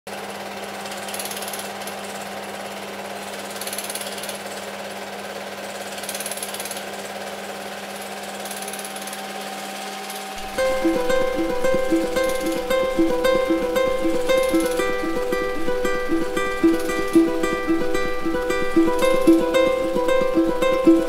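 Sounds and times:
film projector rattling: 0.8s - 4.9s, 5.8s - 9.4s, 10.1s - 21.0s
ukulele strumming: 10.4s - 21.0s.

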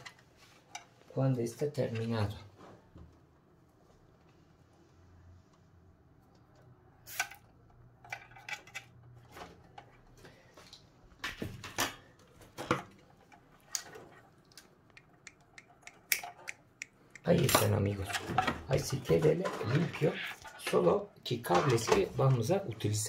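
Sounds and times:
clicks and knocks of computer parts: 8.0s - 16.7s.

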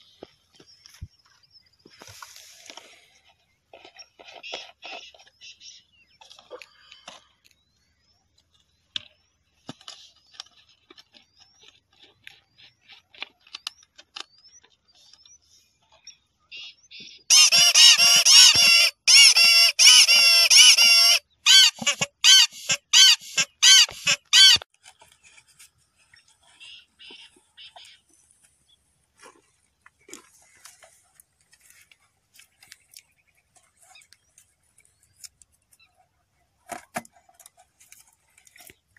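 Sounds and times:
toy whistle honking: 17.3s - 24.6s.

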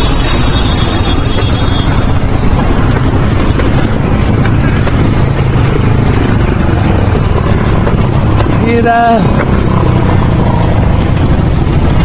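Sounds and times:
wind buffeting microphone: 0.0s - 8.6s.

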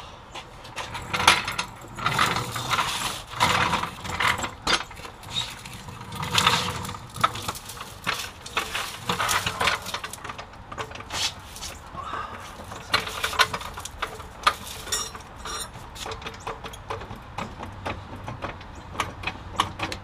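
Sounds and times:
metallic clanks of hand tools: 12.4s - 17.5s.

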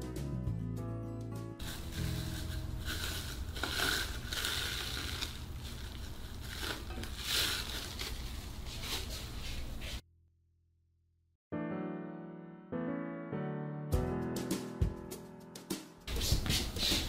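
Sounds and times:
plastic cling wrap crinkling: 1.6s - 9.8s.

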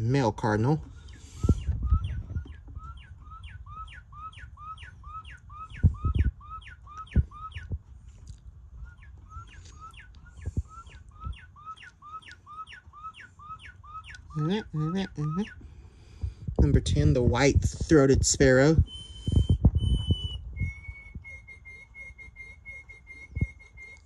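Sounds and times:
recorded birdsong from speaker: 0.0s - 7.8s, 8.8s - 15.7s, 16.5s - 19.5s.

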